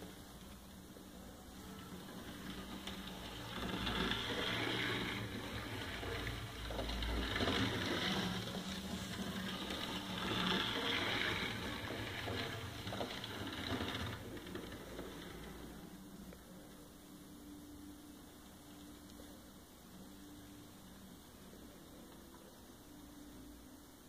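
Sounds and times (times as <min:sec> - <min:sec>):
model train motor whirring: 0:01.6 - 0:16.0
wheels rattling on rails: 0:01.6 - 0:16.2.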